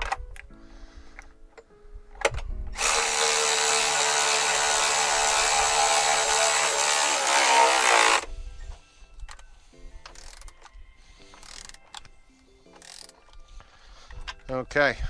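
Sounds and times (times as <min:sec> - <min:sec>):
electric ratchet running: 0:02.8 - 0:08.3.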